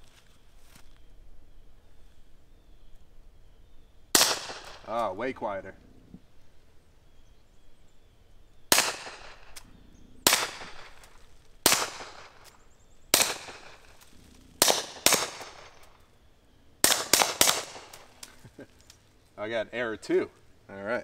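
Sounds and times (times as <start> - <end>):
pistol shots: 4.1 - 5.0, 8.7 - 9.6, 10.2 - 14.0, 14.6 - 16.0, 16.8 - 18.2.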